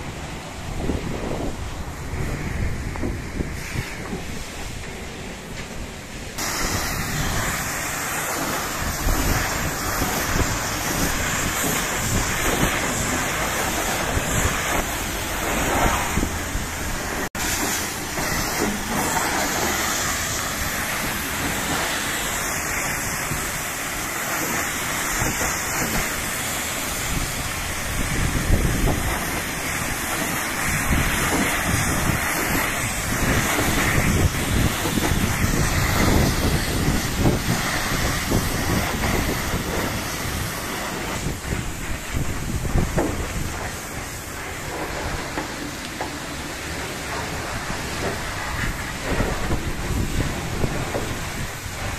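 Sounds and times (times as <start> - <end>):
pressure washer spraying water: 0.0 - 51.9.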